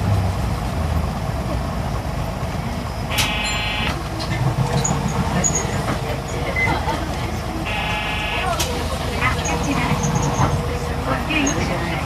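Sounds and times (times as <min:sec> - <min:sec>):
diesel bus engine running: 0:00.0 - 0:12.0
short electronic beep: 0:03.1 - 0:03.9, 0:07.7 - 0:08.5.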